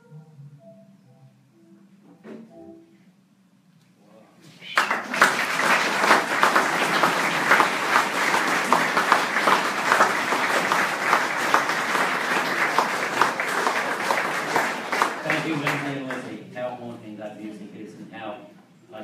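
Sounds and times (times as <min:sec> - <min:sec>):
audience applauding: 0:04.7 - 0:16.4.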